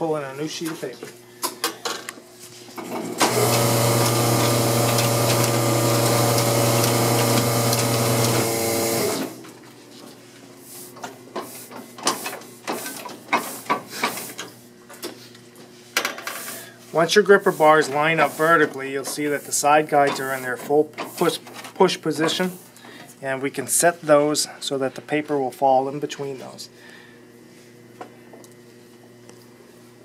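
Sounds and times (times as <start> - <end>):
printing press humming and clattering: 2.7 - 10.2, 17.0 - 22.7.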